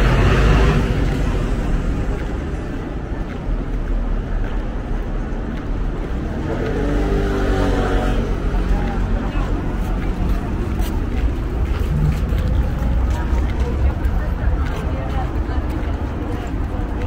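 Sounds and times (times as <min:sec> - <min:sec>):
people's voices: 0:00.0 - 0:17.0
low rumble: 0:08.3 - 0:16.9.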